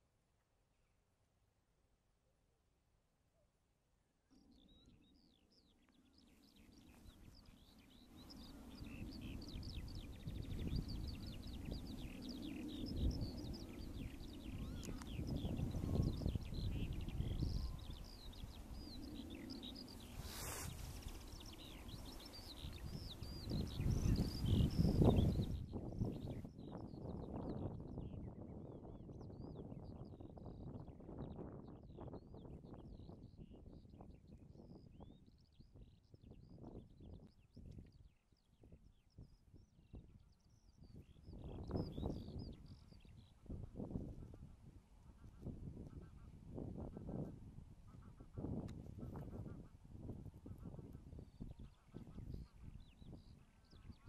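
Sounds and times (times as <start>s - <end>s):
small birds chirping: 4.3s - 54.0s
brief rustle: 20.1s - 21.2s.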